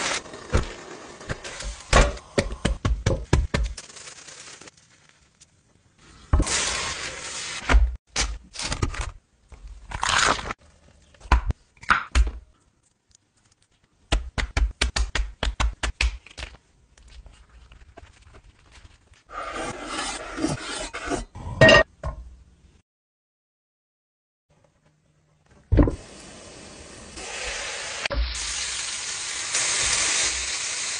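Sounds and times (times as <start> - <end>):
scrape: 17.3 - 21.3.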